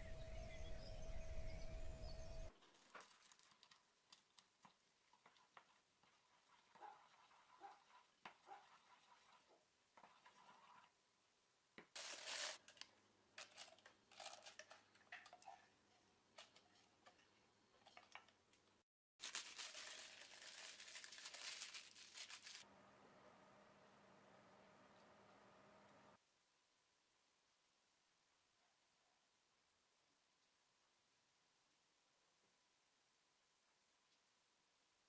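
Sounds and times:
plastic piping bag crinkling: 2.6s - 4.8s, 12.0s - 15.0s, 19.2s - 22.6s.

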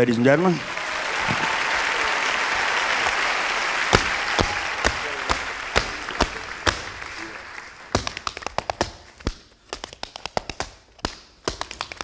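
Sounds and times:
audience applauding: 0.0s - 8.8s
tap shoes on wooden stage: 3.9s - 12.0s.

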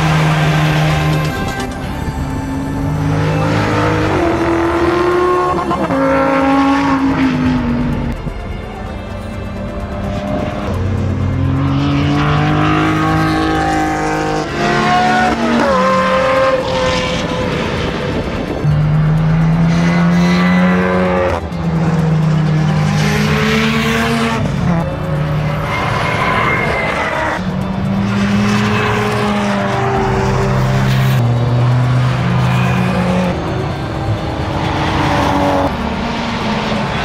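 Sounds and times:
race cars accelerating past: 9.4s - 37.0s.

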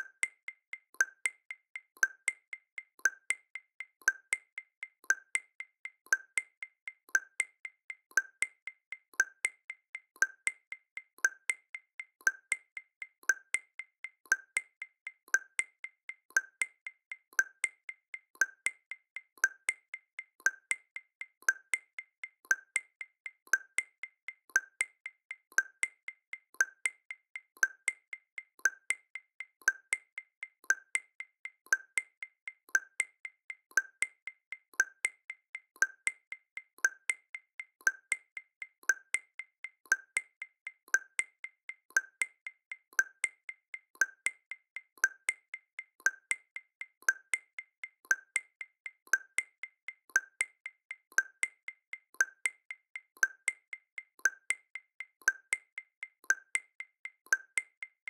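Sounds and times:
wood block percussion clicks: 0.0s - 58.0s.

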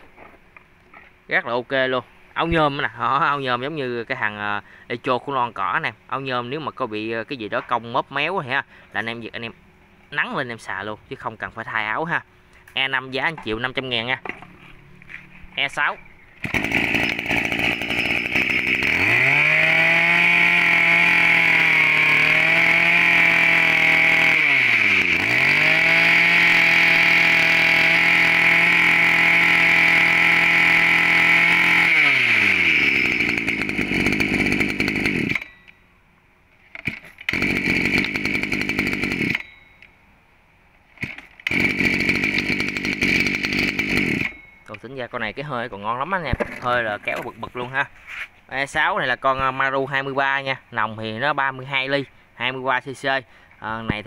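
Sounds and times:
brush-cutter engine running: 16.4s - 35.5s, 36.8s - 39.5s, 41.0s - 44.4s.

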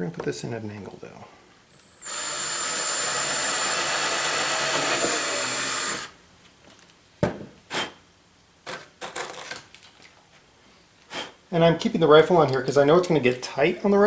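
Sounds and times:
cordless drill whining: 1.7s - 6.2s
drill knocking on workbench: 2.1s - 6.1s.

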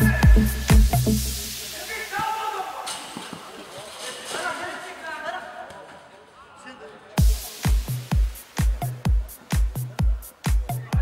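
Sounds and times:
kick drum: 0.0s - 1.2s, 7.2s - 11.0s
electronic dance music: 0.0s - 2.8s, 7.2s - 11.0s.

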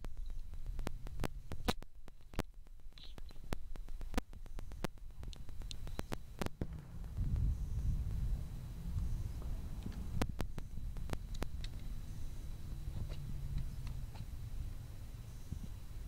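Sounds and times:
low rumble: 4.0s - 16.0s.

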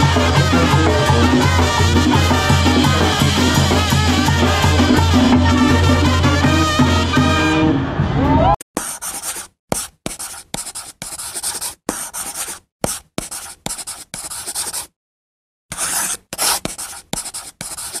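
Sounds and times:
chalk scratching on chalkboard: 8.8s - 15.0s, 15.7s - 18.0s.

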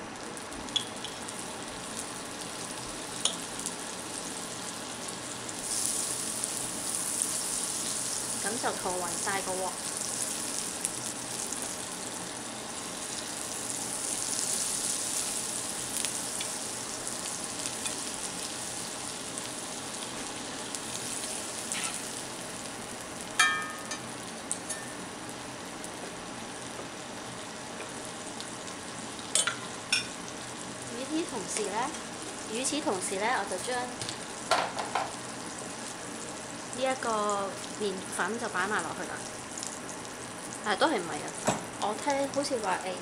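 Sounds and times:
butter sizzling in a skillet: 0.0s - 43.0s
sharp metallic clink: 23.4s - 24.0s.

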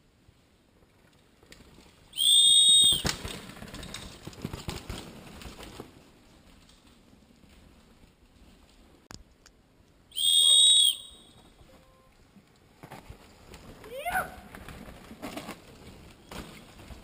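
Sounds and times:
whistle blast: 2.2s - 3.1s, 10.1s - 12.1s.

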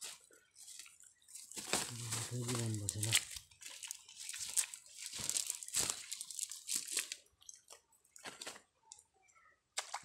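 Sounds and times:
plastic bag crinkling: 0.6s - 7.3s.

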